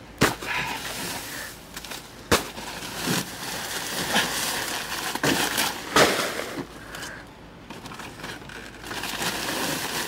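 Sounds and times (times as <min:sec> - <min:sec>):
plastic sacks crinkling: 0:01.8 - 0:06.6, 0:07.8 - 0:10.0.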